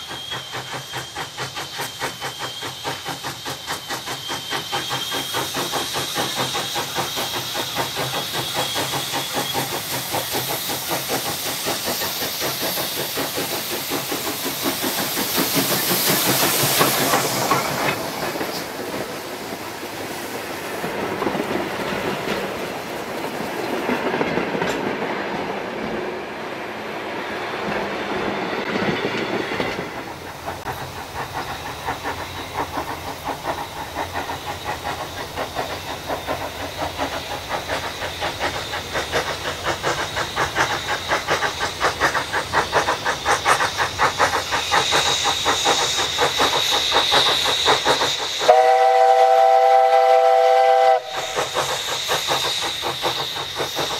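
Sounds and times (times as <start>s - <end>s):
steam locomotive exhaust beats: 0.0s - 53.9s
train wheels clattering on rails: 0.0s - 53.9s.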